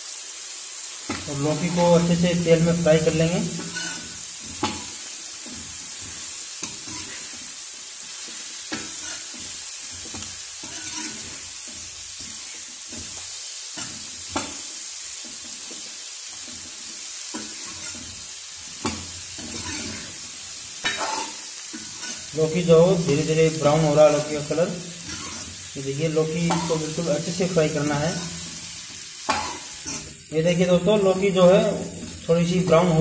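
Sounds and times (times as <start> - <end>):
vegetables sizzling in oil: 0.0 - 33.0
metal spoon scraping pan: 1.2 - 7.4, 8.4 - 13.2, 17.2 - 18.2, 18.8 - 20.2, 20.8 - 25.8, 26.4 - 30.2.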